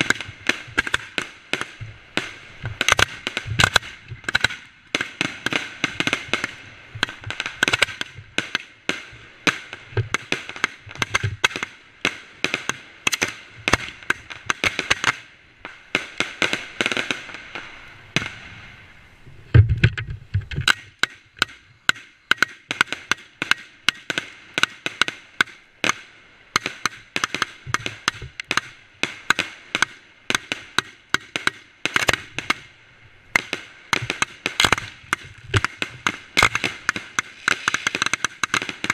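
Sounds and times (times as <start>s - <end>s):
fireworks cracking and banging: 0.0s - 18.8s, 20.5s - 32.7s, 33.3s - 38.9s
fireworks hissing: 33.6s - 38.9s.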